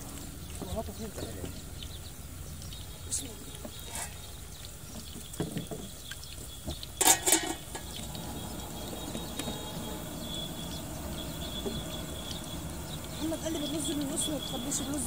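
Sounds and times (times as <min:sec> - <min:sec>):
steady low hiss: 0:00.0 - 0:15.0
metal lid clattering onto pot: 0:07.0 - 0:07.9.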